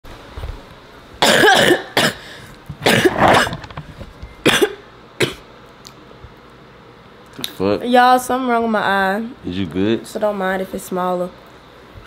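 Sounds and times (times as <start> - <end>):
person coughing: 1.2 - 3.7, 4.4 - 5.4.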